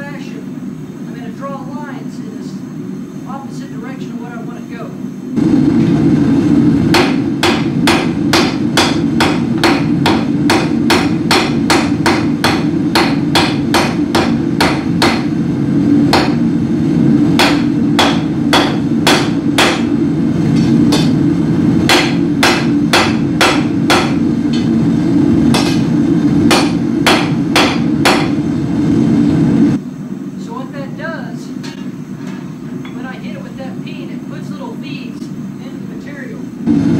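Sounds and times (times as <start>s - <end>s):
hammer striking steel on anvil: 6.9s - 15.3s, 16.1s - 16.4s, 17.4s - 20.0s, 20.6s - 21.2s, 21.9s - 24.7s, 25.5s - 25.9s, 26.5s - 28.4s.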